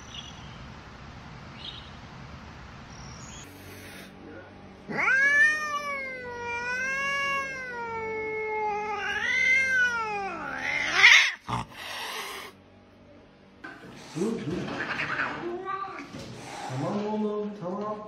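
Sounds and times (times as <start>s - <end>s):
cat yowling: 4.9s - 12.6s.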